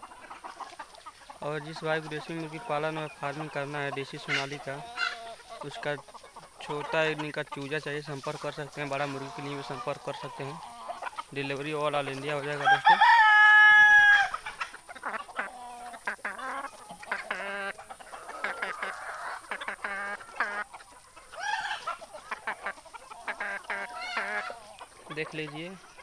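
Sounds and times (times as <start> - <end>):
chickens clucking: 0.0 - 26.0
rooster crowing: 12.5 - 14.4, 21.4 - 21.9.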